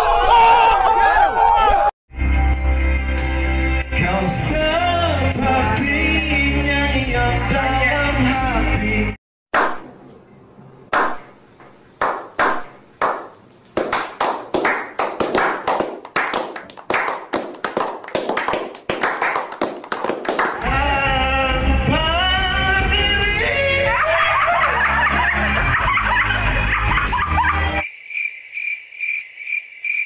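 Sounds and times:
karaoke music with singing: 2.3s - 9.2s, 20.6s - 27.8s
group of people clapping: 12.0s - 20.6s.

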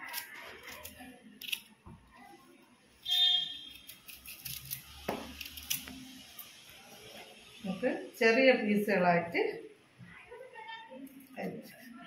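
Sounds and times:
knife scraping vegetable skin: 0.0s - 1.7s, 3.2s - 6.5s.

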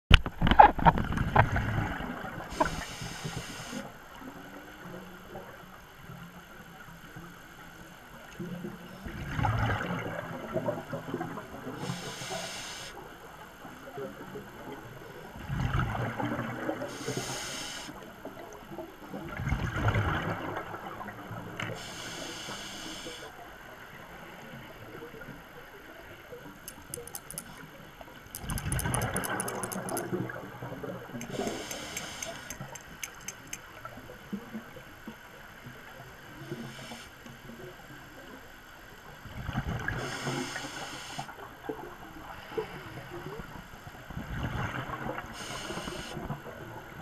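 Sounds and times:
scuba regulator hiss on inhale: 2.5s - 3.9s, 11.8s - 13.0s, 16.9s - 18.0s, 21.7s - 23.3s, 31.2s - 33.6s, 36.5s - 37.2s, 39.9s - 41.4s, 45.3s - 46.2s.

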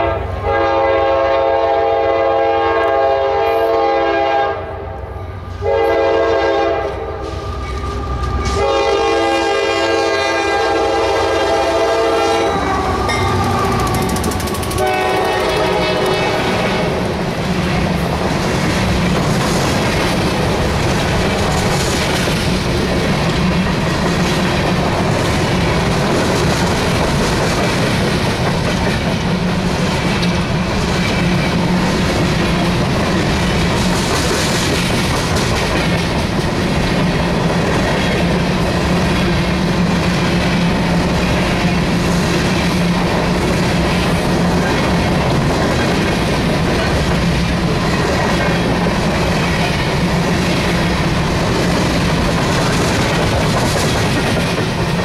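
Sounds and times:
locomotive horn blasts: 0.0s - 7.4s, 8.1s - 14.0s, 14.7s - 17.1s
train wheels clattering on rails: 6.8s - 55.0s.

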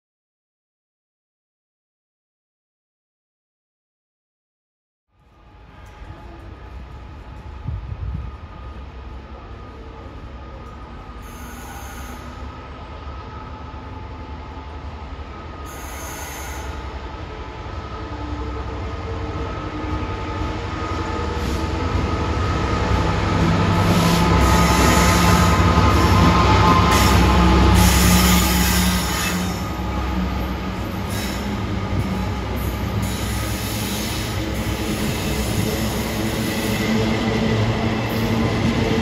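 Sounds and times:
train wheels on rails: 5.2s - 17.8s, 18.7s - 39.0s
diesel locomotive engine rumble: 5.2s - 39.0s.

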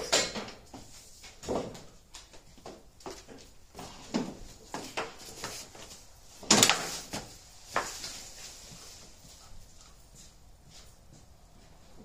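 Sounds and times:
objects knocking and clattering: 0.0s - 0.8s.

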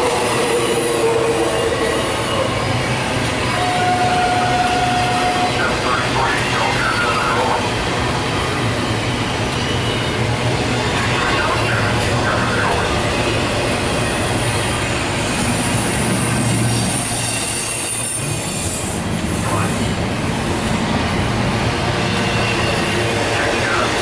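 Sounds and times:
freight train wheels rumbling: 0.0s - 24.0s
high wheel squeal: 14.0s - 19.8s.

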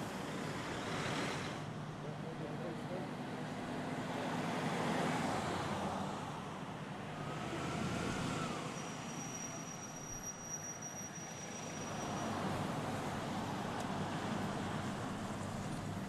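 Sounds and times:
cars driving past: 0.0s - 2.1s, 2.7s - 10.0s.

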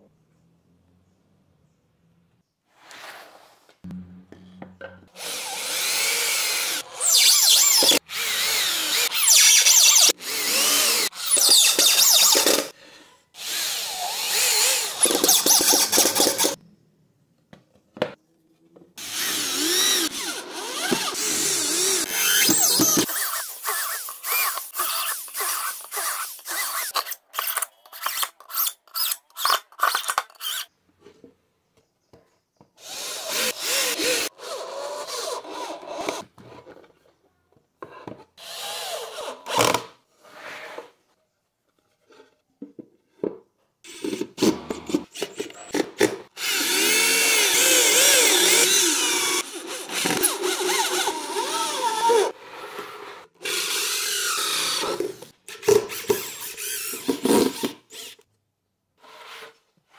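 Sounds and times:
electric drill driving screws: 5.2s - 12.7s, 13.4s - 16.6s, 19.0s - 30.7s, 32.8s - 36.2s, 38.4s - 39.9s, 43.9s - 58.3s.

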